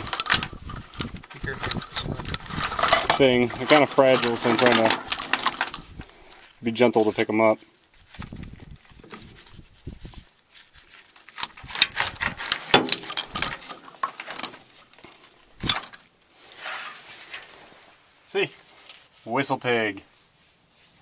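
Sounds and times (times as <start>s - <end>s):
plastic shells clattering: 0.0s - 6.2s, 11.2s - 16.1s.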